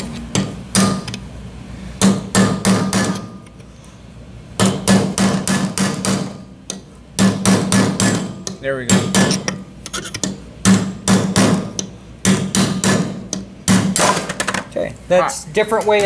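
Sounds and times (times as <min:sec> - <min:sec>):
hammer striking steel punch: 0:00.3 - 0:01.2, 0:02.0 - 0:03.4, 0:04.6 - 0:14.4.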